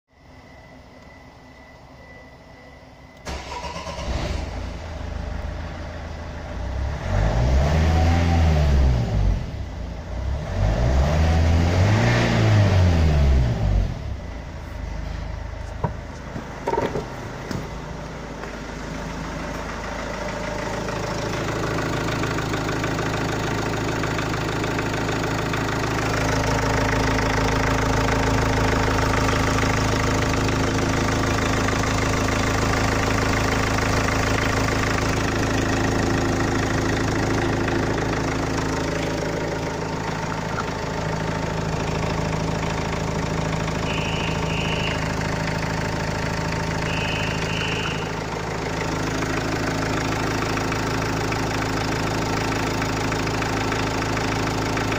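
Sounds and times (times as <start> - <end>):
diesel engine idling: 0.2 - 54.9
diesel engine starting and revving: 3.2 - 54.9.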